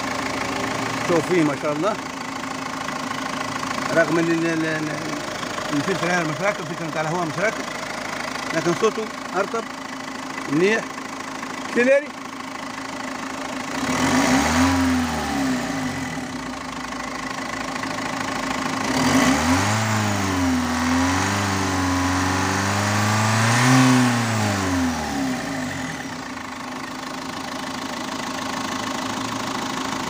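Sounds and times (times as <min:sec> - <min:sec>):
diesel engine idling and revving: 0:00.0 - 0:30.0.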